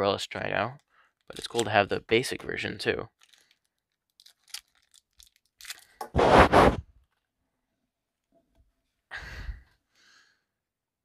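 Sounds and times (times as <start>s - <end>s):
plastic wrapper crinkling: 3.2s - 6.1s.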